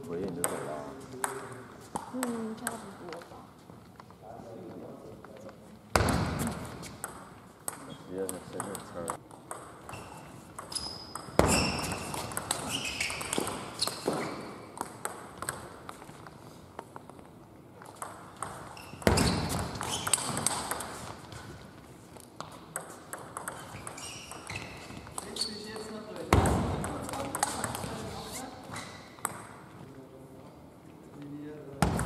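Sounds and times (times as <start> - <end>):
loud table tennis hits: 0.3 - 2.9, 5.9 - 16.1, 17.8 - 21.5, 22.4 - 28.1, 29.0 - 29.6, 31.8 - 32.0
table tennis balls clicking: 6.8 - 29.5.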